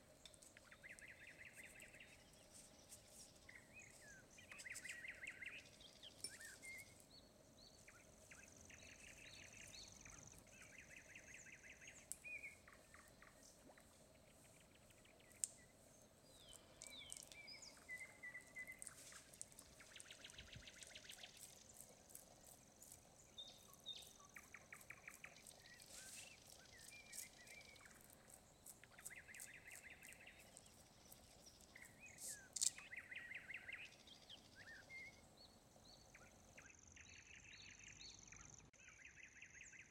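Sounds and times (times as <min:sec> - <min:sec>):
faint high hiss: 0:00.0 - 0:35.5
birds chirping and trilling: 0:00.2 - 0:39.9.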